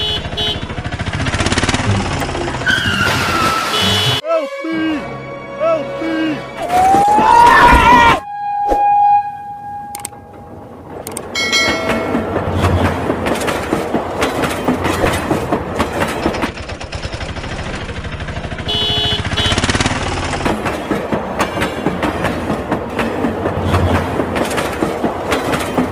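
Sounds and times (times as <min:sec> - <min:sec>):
train whistle: 0:07.9 - 0:10.1
train wheels clickety-clack: 0:10.9 - 0:25.9.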